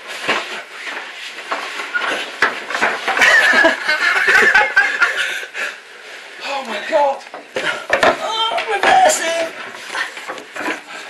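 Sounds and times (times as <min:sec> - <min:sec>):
man laughing loudly: 0:03.2 - 0:05.4.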